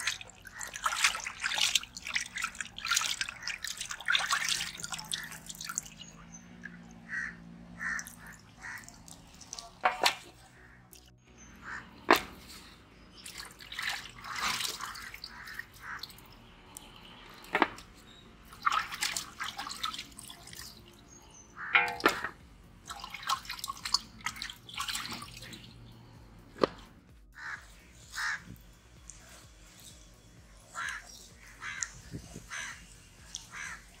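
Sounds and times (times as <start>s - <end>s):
water splashing and dripping: 0.0s - 34.0s
knocks against metal pot: 21.8s - 22.4s.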